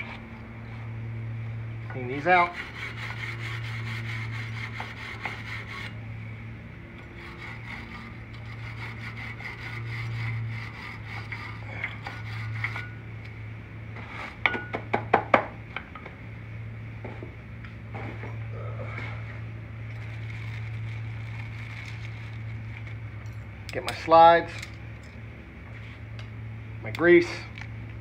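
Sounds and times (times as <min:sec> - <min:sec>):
steady low hum: 0:00.0 - 0:28.0
stiff brush scrubbing metal: 0:07.2 - 0:13.0.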